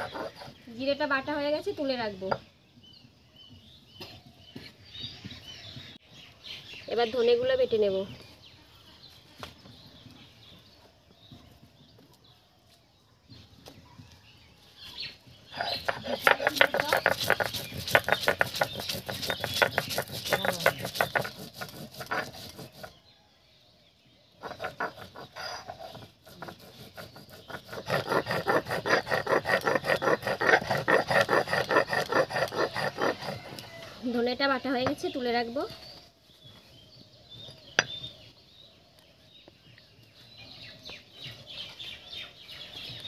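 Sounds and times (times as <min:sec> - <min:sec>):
stone grinding on stone slab: 0:00.0 - 0:00.6, 0:15.5 - 0:23.0, 0:24.4 - 0:33.7.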